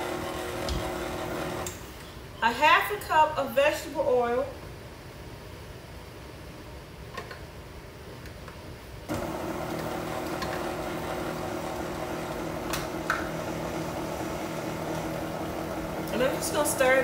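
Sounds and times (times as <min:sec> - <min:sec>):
stand mixer motor running: 0:00.0 - 0:01.7, 0:09.1 - 0:17.0.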